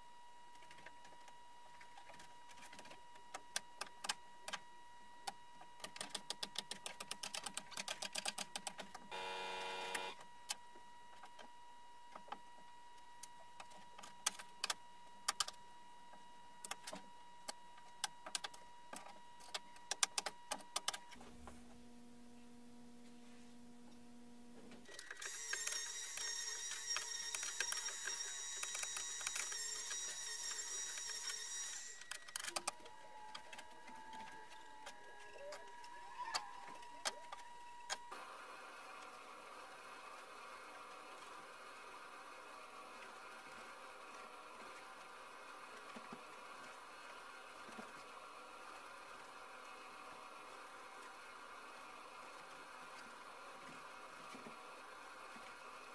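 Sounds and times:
high whirring noise: 38.1 - 55.9
sharp mechanical clicks: 38.1 - 55.9.

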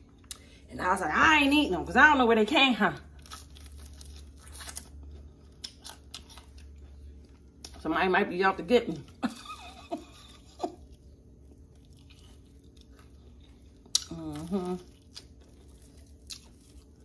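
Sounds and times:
crunchy chewing: 3.1 - 7.8, 10.3 - 17.0.

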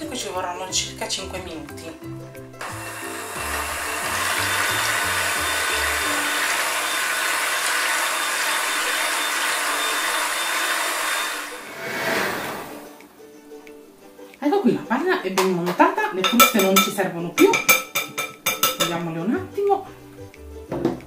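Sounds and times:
electric hand mixer whirring: 2.6 - 12.8.

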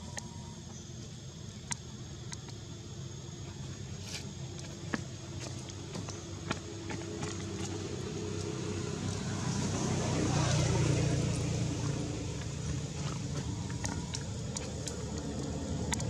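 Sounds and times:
faint small clicks: 1.6 - 2.6
vehicle passing by: 6.7 - 16.0.

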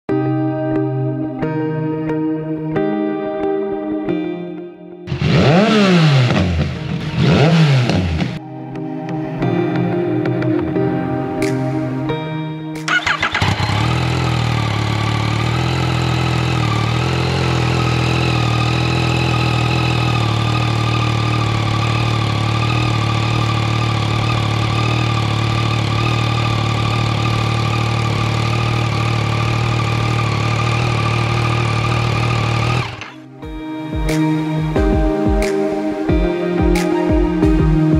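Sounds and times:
motorcycle engine starting and idling: 5.1 - 8.4, 12.8 - 35.2.

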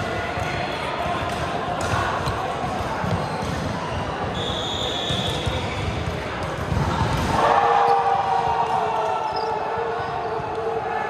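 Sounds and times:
ball bouncing on indoor court: 0.2 - 7.4.

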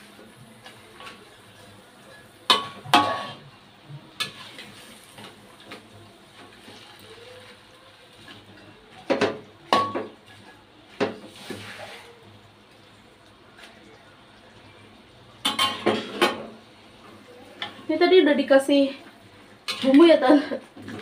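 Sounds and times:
metal spatula clanking in wok: 2.5 - 3.4.

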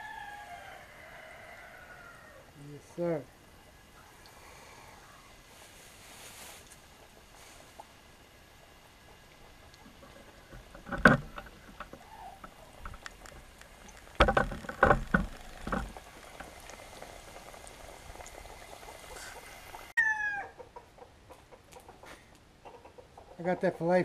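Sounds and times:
fish deep-frying in oil: 11.8 - 20.0
chicken calling: 11.9 - 12.8, 18.4 - 23.2.

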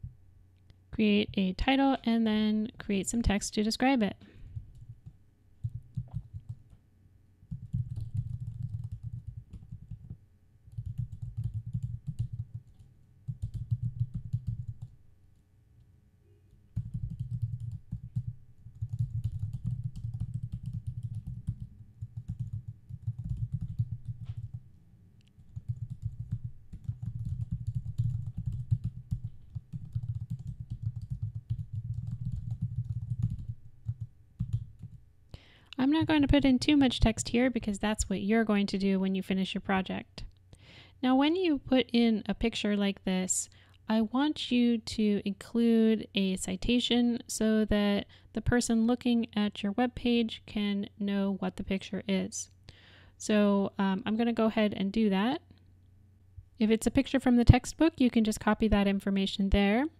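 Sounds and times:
computer keyboard typing: 5.6 - 6.7, 7.5 - 14.9, 16.8 - 24.6, 25.4 - 35.0.

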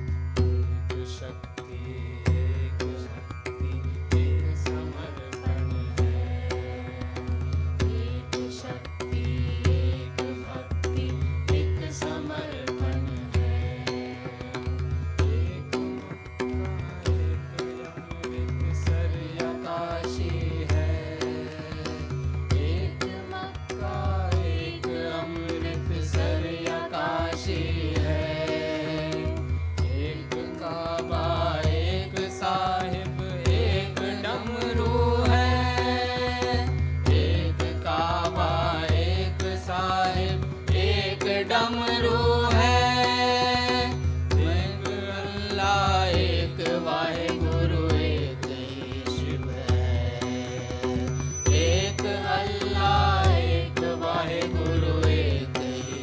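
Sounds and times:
voices singing: 22.6 - 56.0.

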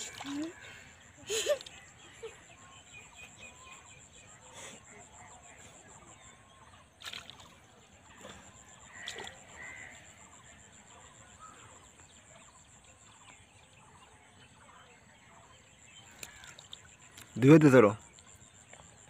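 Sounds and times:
hands splashing in shallow water: 0.0 - 0.7, 7.0 - 9.6, 16.0 - 17.6.

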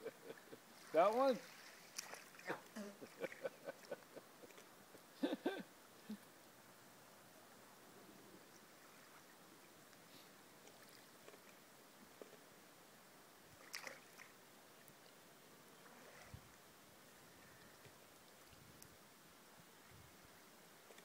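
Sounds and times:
water lapping at shore: 0.0 - 5.2, 8.5 - 9.8, 10.6 - 12.4, 13.5 - 16.7.

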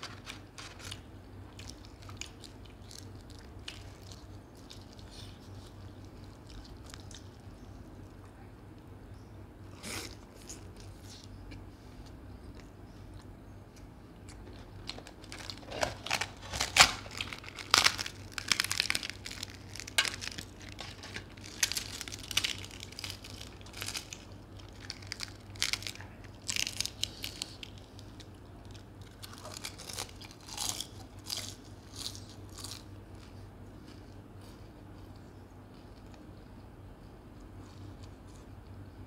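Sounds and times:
bread being torn by hand: 15.3 - 27.7
man chewing and biting food: 26.5 - 39.0.

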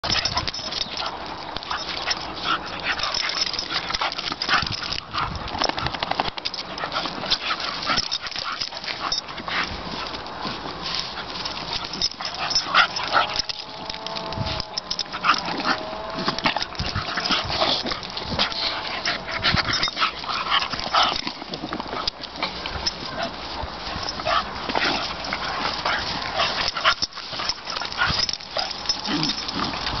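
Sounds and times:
dogs yipping and whimpering: 0.0 - 5.7, 6.5 - 10.3, 11.0 - 30.0
scuffling in grass: 6.6 - 30.0
dog wavering whine: 11.7 - 21.2, 24.0 - 30.0.

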